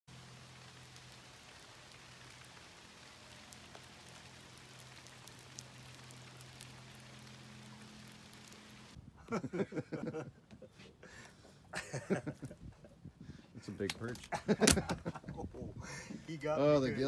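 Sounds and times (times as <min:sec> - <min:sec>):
light patter of ticks: 0:00.1 - 0:09.0.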